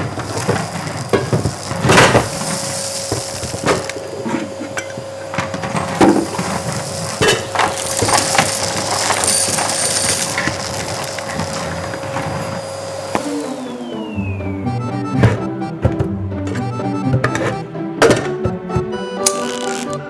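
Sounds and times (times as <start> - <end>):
thin steady whine: 0.0 - 15.1
china clinking: 6.2 - 11.7.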